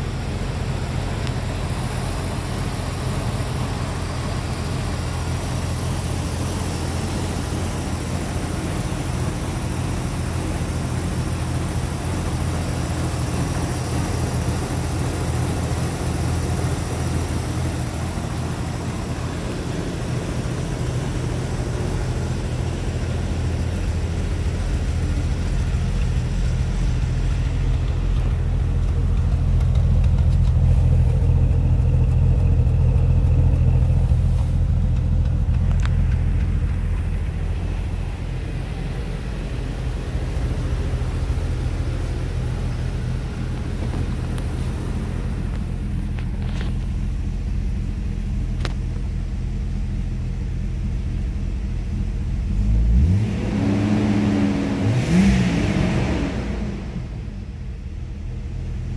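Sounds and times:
car engine idling: 0.0 - 58.9
faint clicks: 34.9 - 37.4.

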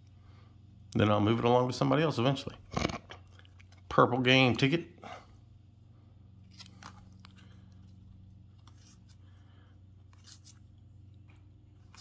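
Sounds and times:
faint low hum: 0.0 - 12.0
cards sliding against each other: 6.4 - 9.4, 10.0 - 12.0.

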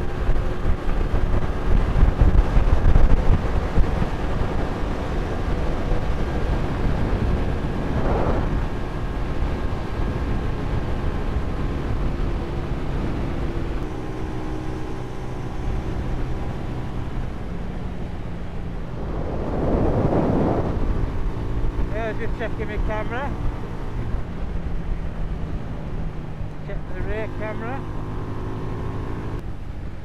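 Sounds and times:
wind rush: 0.0 - 29.4
motorcycle engine running: 0.0 - 30.0.

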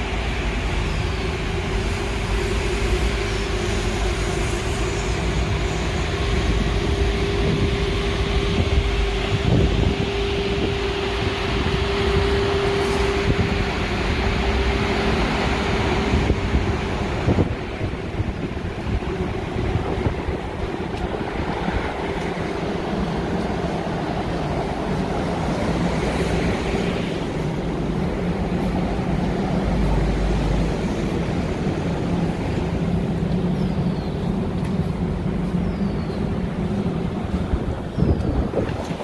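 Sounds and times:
street traffic: 0.0 - 39.0
wind buffeting microphone: 4.3 - 14.8, 15.6 - 33.3, 36.1 - 39.0.

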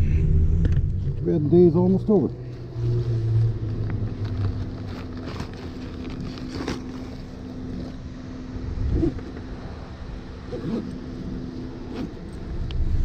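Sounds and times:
low rumble: 0.0 - 10.4
low thump: 0.1 - 1.2
cardboard and backpack rustling: 2.6 - 8.0
wind on microphone: 8.6 - 9.2.

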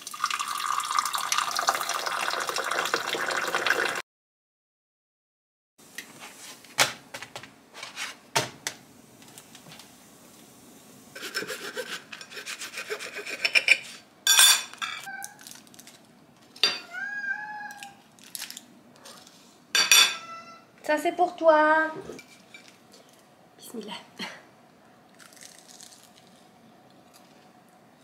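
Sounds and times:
knife sawing through flatbread: 11.2 - 14.0.

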